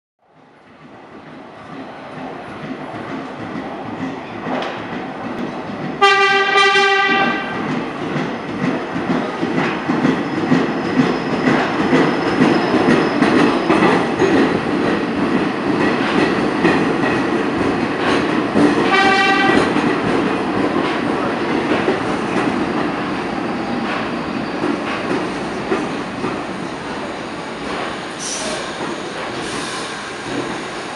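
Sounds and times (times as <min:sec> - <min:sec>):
subway cars running past: 0:00.2 - 0:30.9
subway train horn: 0:06.0 - 0:07.6, 0:18.7 - 0:20.1.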